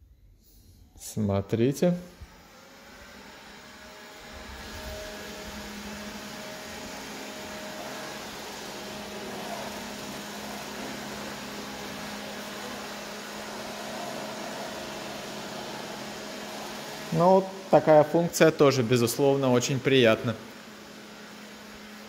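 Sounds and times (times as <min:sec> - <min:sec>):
robot vacuum fan whirring: 0:02.1 - 0:22.0.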